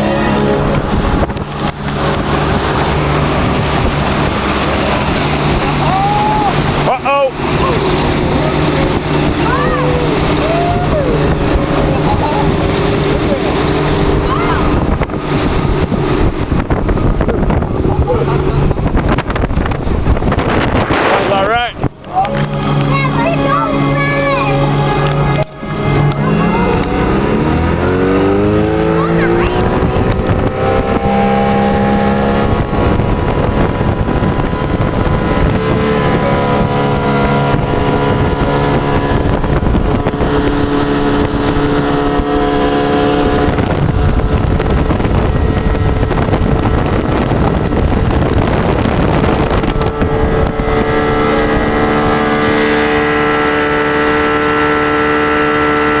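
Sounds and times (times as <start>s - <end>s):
outboard motor running: 0.0s - 56.0s
rushing water: 0.0s - 56.0s
wind on microphone: 0.0s - 56.0s.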